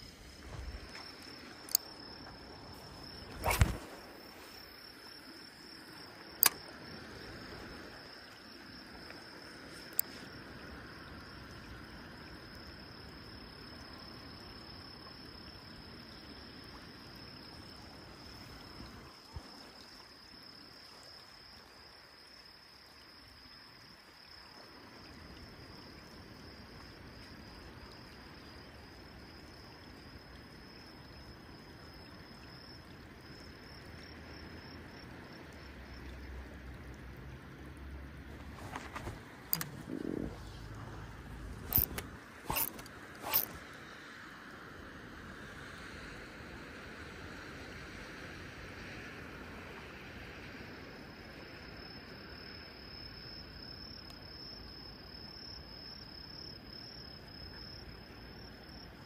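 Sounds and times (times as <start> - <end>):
insects trilling: 0.0 - 59.0
sharp click: 6.4 - 6.6, 38.8 - 39.8, 41.7 - 43.6
low wash of water: 31.4 - 52.4.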